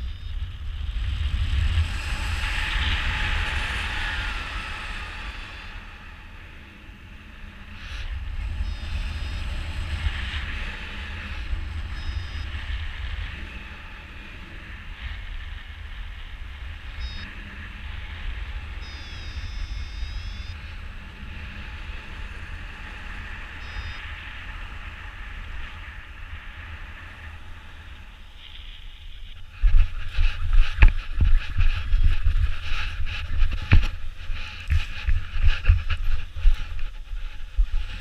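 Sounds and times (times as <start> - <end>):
wind rushing over microphone: 0.0 - 38.0
wind buffeting hits: 20.6 - 38.0.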